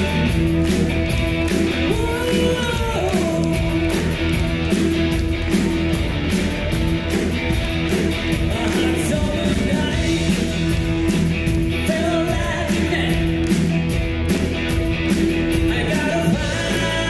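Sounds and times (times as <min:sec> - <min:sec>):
live rock band playing: 0:00.0 - 0:17.0
person singing: 0:01.7 - 0:04.2, 0:08.4 - 0:10.6, 0:11.8 - 0:13.4, 0:15.5 - 0:17.0.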